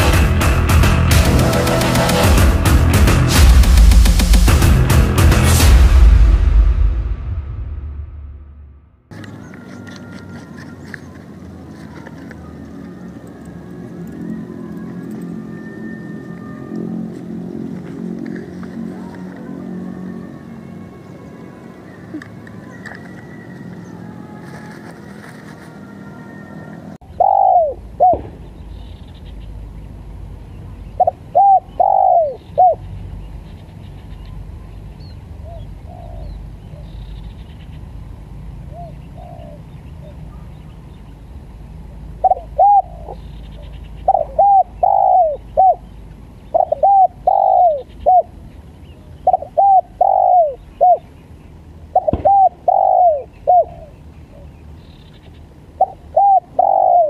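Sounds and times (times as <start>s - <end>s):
dove cooing: 21.9s - 28.3s, 31.0s - 32.8s, 35.4s - 36.9s, 38.7s - 40.4s, 42.2s - 48.4s, 49.2s - 51.1s, 51.9s - 54.5s, 55.7s - 57.0s.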